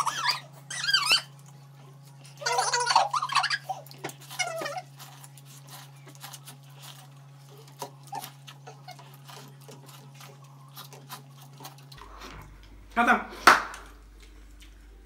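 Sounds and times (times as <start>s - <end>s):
steady low hum: 0.0s - 15.0s
people slurping and lip-smacking: 1.4s - 12.8s.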